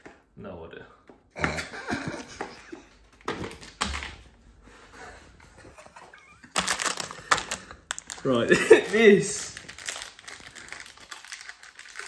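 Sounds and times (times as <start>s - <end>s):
plastic packaging crinkling: 6.4s - 12.0s.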